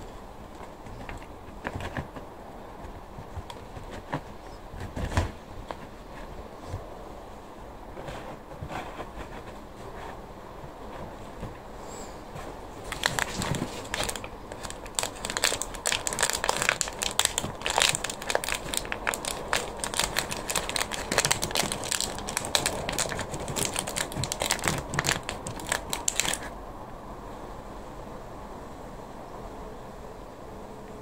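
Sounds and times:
gloved hands crinkling and rustling: 0:12.4 - 0:26.5.

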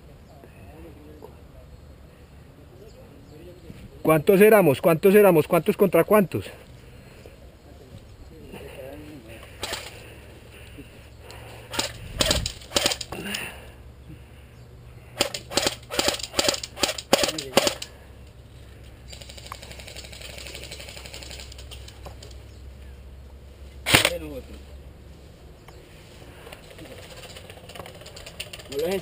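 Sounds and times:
airsoft guns firing: 0:09.6 - 0:10.0, 0:11.7 - 0:13.3, 0:15.2 - 0:17.9, 0:23.8 - 0:24.2.

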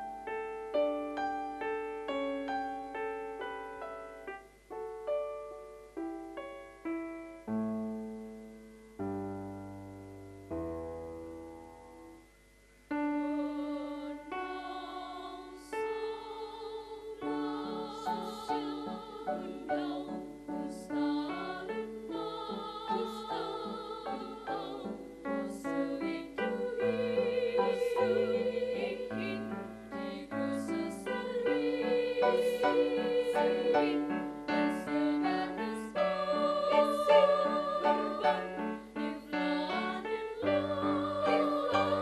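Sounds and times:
choir singing: 0:13.1 - 0:42.0.

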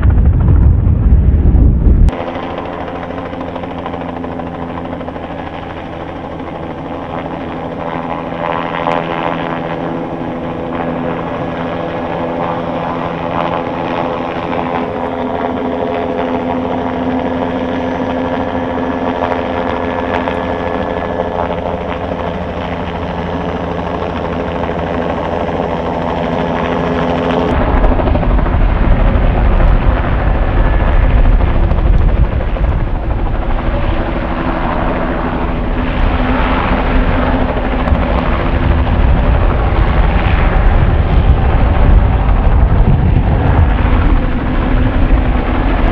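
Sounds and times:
deep rumble: 0:00.0 - 0:02.2, 0:27.5 - 0:34.4, 0:37.4 - 0:45.9
helicopter rotor and engine drone: 0:00.0 - 0:45.9.

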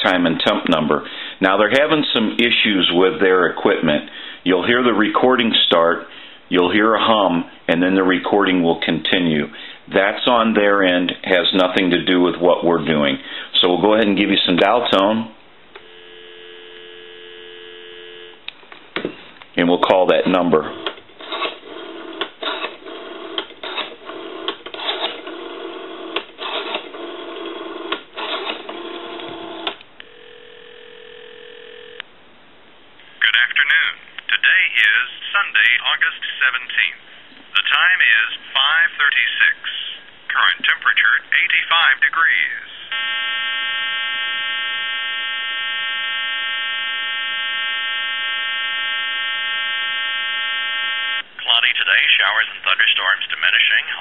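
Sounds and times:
quiet steady phone tone: 0:15.7 - 0:18.5, 0:19.6 - 0:32.1, 0:33.2 - 0:54.0
telephone dial tone: 0:15.8 - 0:18.4, 0:20.7 - 0:32.0
buzzy hum on telephone line: 0:15.8 - 0:18.5, 0:28.8 - 0:32.0, 0:42.7 - 0:51.4
recorded voice over telephone: 0:19.6 - 0:20.8, 0:33.2 - 0:43.1, 0:51.4 - 0:54.0.

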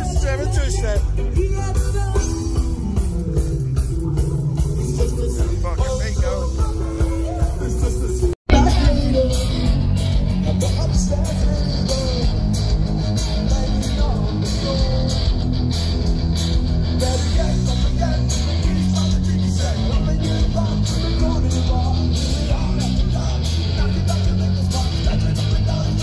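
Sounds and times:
live rock band: 0:00.0 - 0:26.0.

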